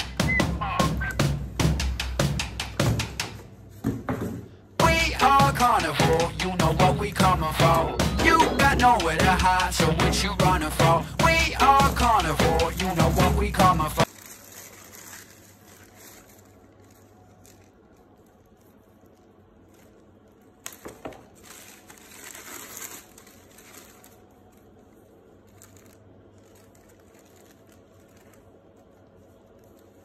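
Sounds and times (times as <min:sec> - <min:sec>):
tissue paper rustling and crinkling: 0:11.3 - 0:30.0.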